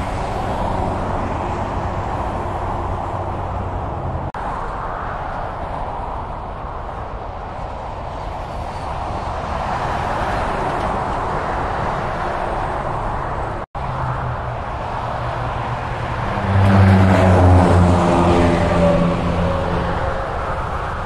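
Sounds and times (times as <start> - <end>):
highway traffic: 0.0 - 21.0
diesel truck engine passing: 10.0 - 21.0.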